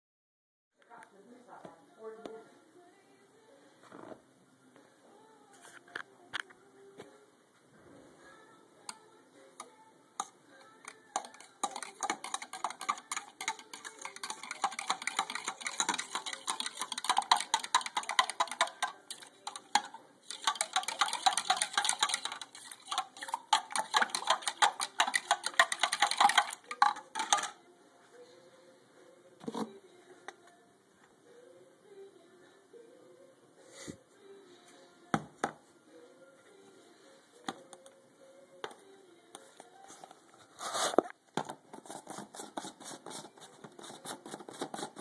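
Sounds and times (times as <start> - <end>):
drink stirred with ice: 10.9 - 27.6
ice clicking against cup: 10.9 - 27.6.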